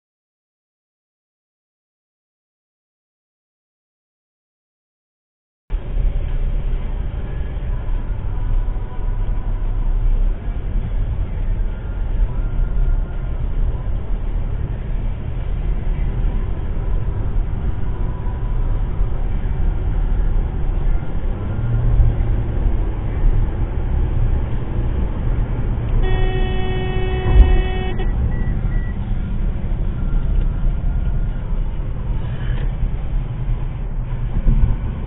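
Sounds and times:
car road and engine noise: 5.7s - 35.0s
car horn: 25.9s - 28.9s.

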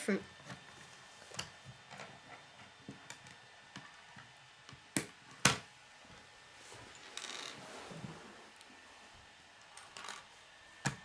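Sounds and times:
soft rustle: 6.2s - 9.1s.

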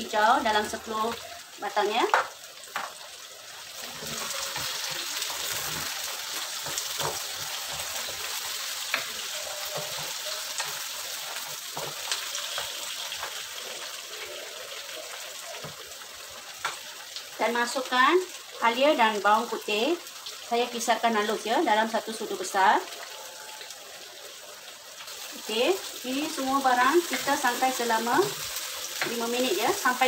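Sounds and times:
vegetables sizzling in oil: 0.0s - 30.0s
spatula stirring and tapping pan: 2.0s - 3.0s, 3.8s - 13.8s.

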